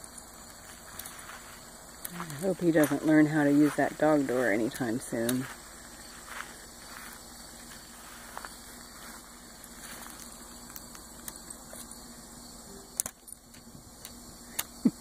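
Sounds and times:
collar tags jingling: 2.1s - 6.3s.

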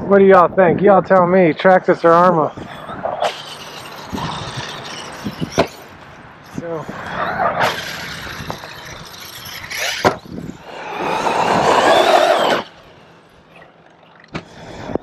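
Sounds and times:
electric motor whine and tyre noise: 2.4s - 13.7s.

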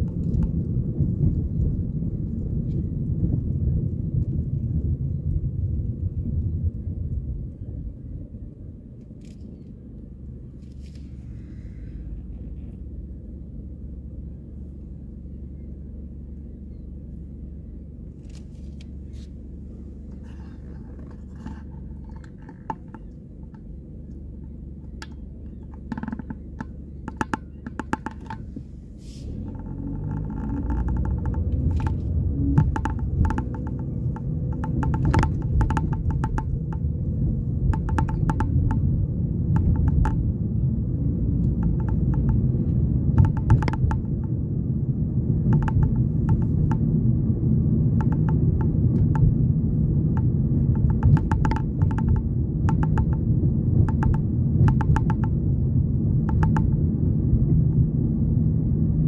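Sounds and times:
car engine and road rumble: 0.0s - 59.0s
clicks and small rattles: 20.0s - 28.8s, 29.4s - 38.9s, 39.5s - 40.3s, 41.4s - 44.4s, 45.4s - 46.8s, 48.0s - 49.4s, 50.1s - 55.4s, 56.1s - 56.9s.

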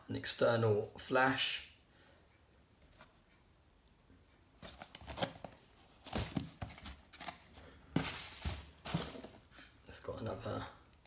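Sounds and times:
cardboard box scrapes and rustles: 8.0s - 9.7s.

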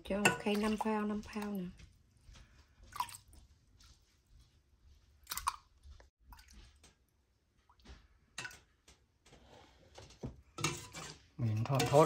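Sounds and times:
small liquid splashes: 2.8s - 3.4s, 5.2s - 7.0s.

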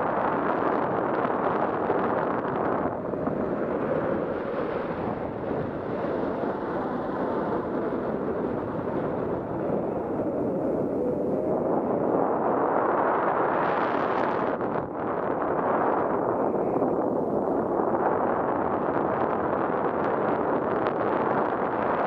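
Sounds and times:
wind rushing over microphone: 0.0s - 22.0s.

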